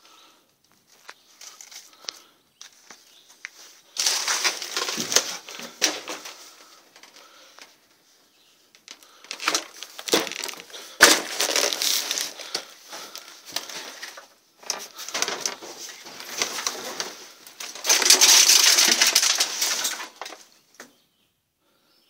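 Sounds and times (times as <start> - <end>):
crunching and rustling: 0.2 - 20.9.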